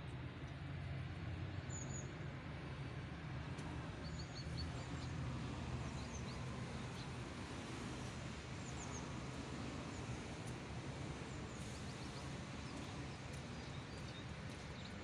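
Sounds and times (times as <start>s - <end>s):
small birds chirping: 11.5s - 15.0s.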